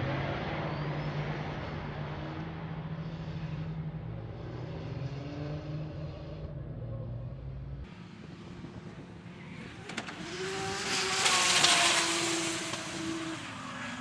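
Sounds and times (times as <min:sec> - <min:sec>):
car engine at high revs: 0:00.0 - 0:14.0
faint engine: 0:00.0 - 0:14.0.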